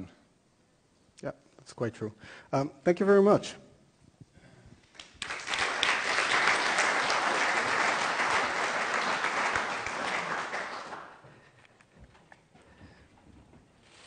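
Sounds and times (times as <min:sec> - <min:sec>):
audience applauding: 0:04.9 - 0:11.3.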